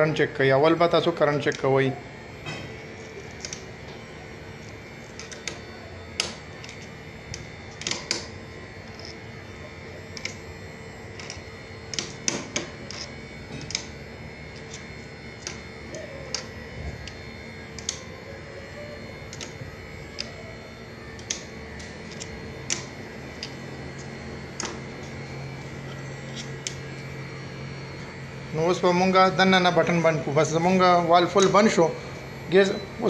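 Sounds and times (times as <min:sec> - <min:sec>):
air conditioner unit humming: 0:00.0 - 0:33.0
low hum: 0:00.0 - 0:33.0.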